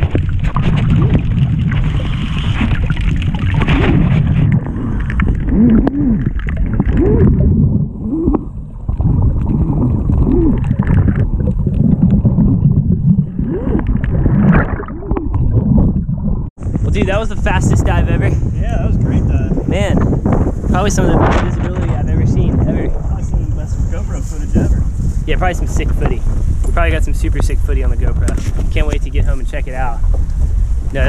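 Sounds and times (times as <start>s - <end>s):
regulator bubbles gurgling: 0.0s - 17.0s
muffled underwater rumble: 0.0s - 31.0s.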